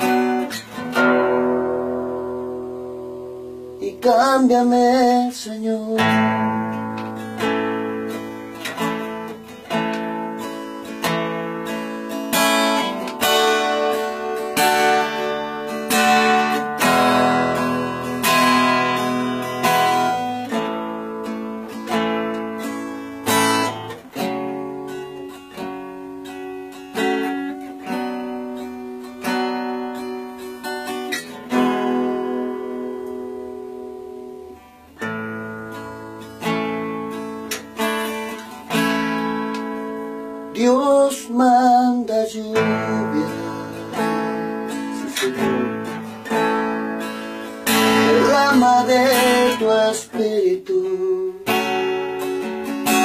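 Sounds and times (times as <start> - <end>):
acoustic guitar strumming: 0.0 - 53.0.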